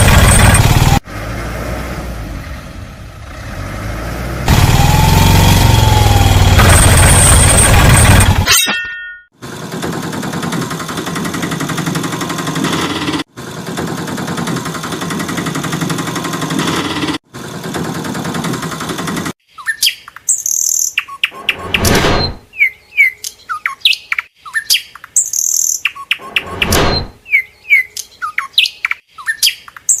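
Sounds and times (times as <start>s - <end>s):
rattling engine: 0.0s - 8.5s, 9.4s - 19.4s
bird chirps: 19.5s - 30.0s.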